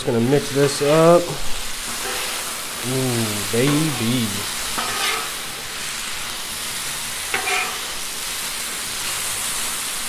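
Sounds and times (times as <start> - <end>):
meat sizzling on griddle: 0.0 - 10.0
metal spatula scraping: 1.8 - 2.5, 3.6 - 5.7, 7.3 - 8.0.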